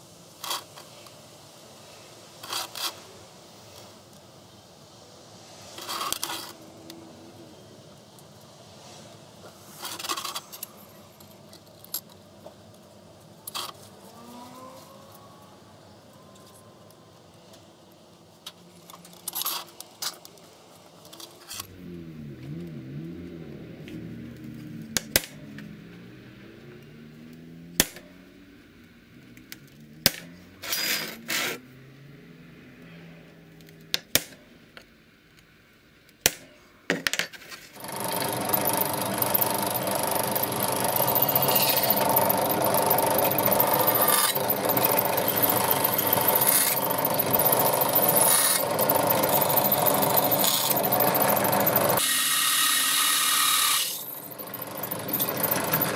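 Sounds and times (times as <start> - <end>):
drill press drilling steel: 37.8 - 55.9.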